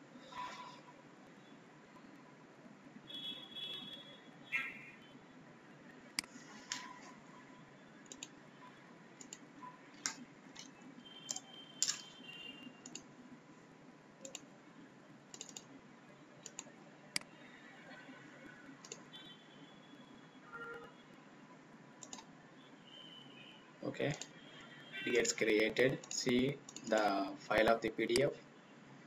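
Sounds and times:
mouse and keyboard clicks: 6.2 - 7.0, 8.1 - 8.3, 11.3 - 12.2, 12.8 - 13.1, 14.2 - 14.5, 15.3 - 15.7, 16.4 - 17.3, 22.0 - 22.3.

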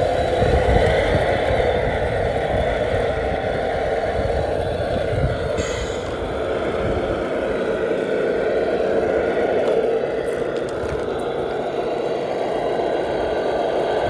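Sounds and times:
toy truck mechanical running: 0.0 - 14.0.

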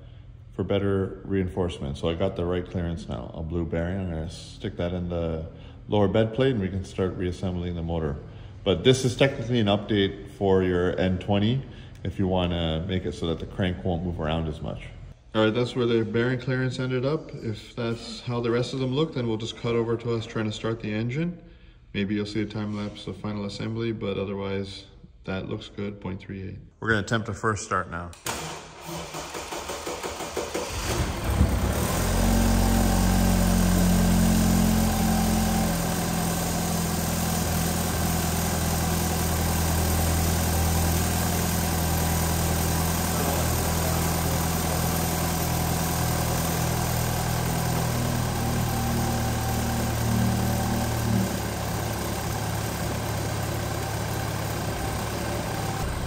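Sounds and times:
engine cranking on starter: 28.2 - 56.0
car engine idling: 29.0 - 56.0.

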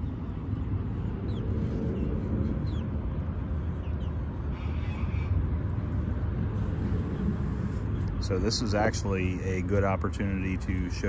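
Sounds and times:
small birds chirping: 0.0 - 11.0
steady low rumble: 0.0 - 11.0.

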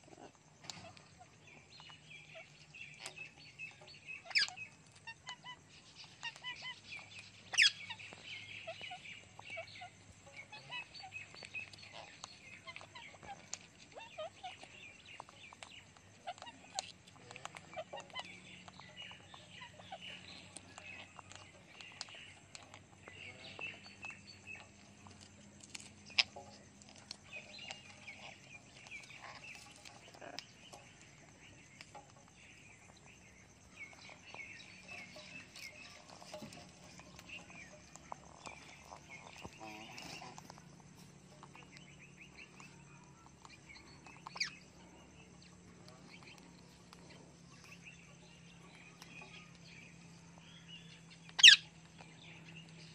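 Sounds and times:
parrots chattering: 0.0 - 52.9
short high bird calls: 51.3 - 51.7.

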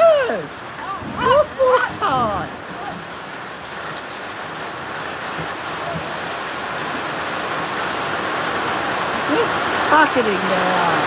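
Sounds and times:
heavy rain with hail: 0.0 - 11.0.

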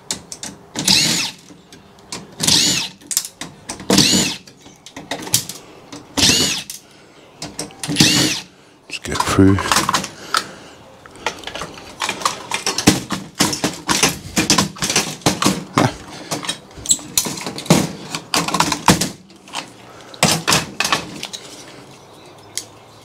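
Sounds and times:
metal and plastic parts knocking: 11.2 - 19.6.

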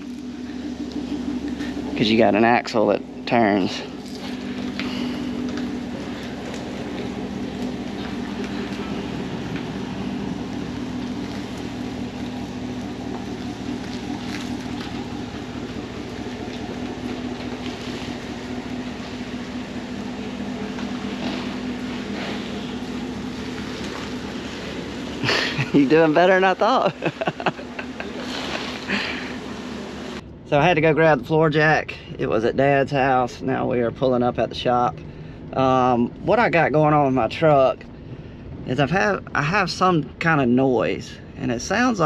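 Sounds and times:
farm machinery engine running: 0.0 - 30.2.

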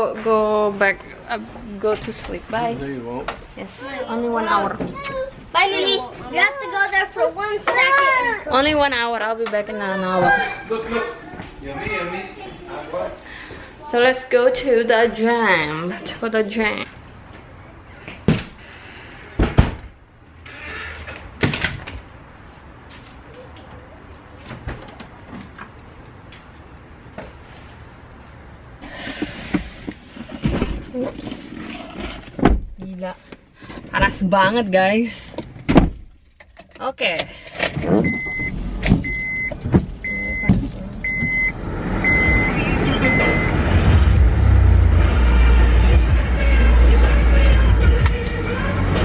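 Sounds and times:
door thumping shut: 19.4 - 19.9, 32.4 - 32.8, 35.6 - 36.1
steady cabin noise: 37.7 - 49.0
dashboard warning chime: 38.1 - 43.6.

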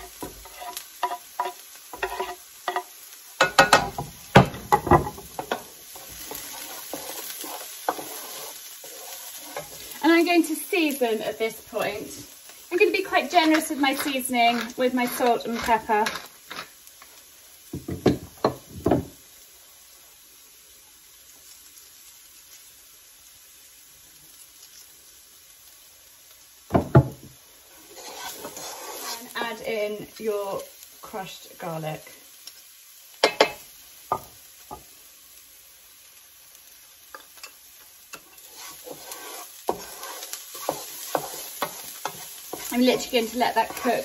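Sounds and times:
spoon scraping and stirring pan: 0.0 - 19.0, 26.8 - 30.2, 33.2 - 34.9, 36.6 - 44.0
vegetables sizzling in oil: 0.0 - 44.0
wooden and ceramic knocks: 17.8 - 19.1, 26.7 - 27.3.

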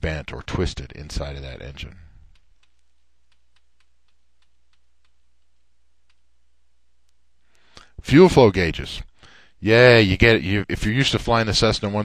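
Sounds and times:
low steady hum: 0.0 - 12.0
computer mouse clicking: 2.3 - 6.3.

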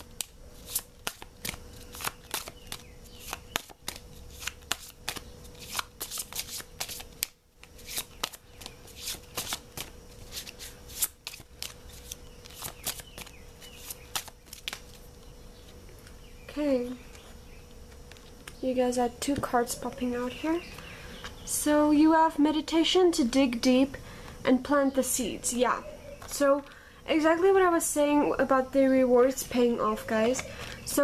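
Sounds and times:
cards being shuffled by hand: 0.0 - 15.3.

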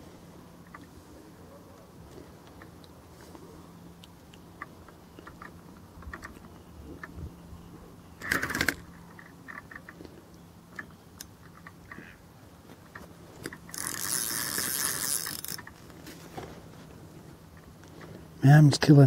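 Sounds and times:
fishing reel clicking: 13.4 - 15.8.

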